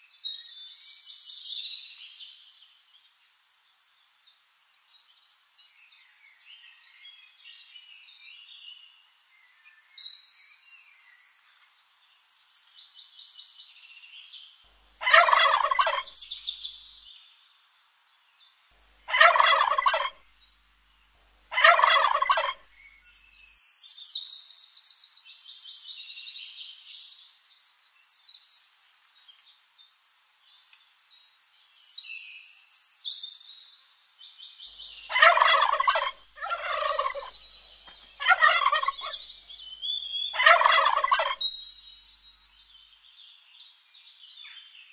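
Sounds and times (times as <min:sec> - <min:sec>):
birds chirping: 0:14.8 - 0:17.1, 0:18.7 - 0:20.2, 0:21.5 - 0:23.4, 0:34.7 - 0:43.1
turkey gobbling: 0:15.0 - 0:16.2, 0:19.1 - 0:20.2, 0:21.5 - 0:22.6, 0:35.1 - 0:39.2, 0:40.3 - 0:41.4.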